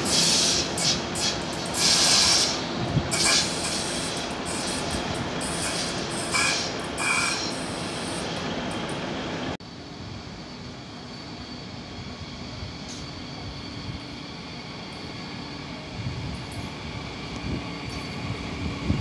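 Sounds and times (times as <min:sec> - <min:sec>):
freight train rumbling past: 0:00.0 - 0:19.0
high wheel squeals: 0:03.2 - 0:08.4.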